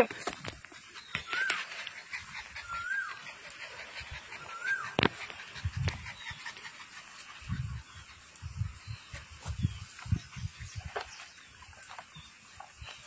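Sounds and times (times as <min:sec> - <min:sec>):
puppy panting: 0:00.6 - 0:11.0
puppy whimpering: 0:02.3 - 0:05.0.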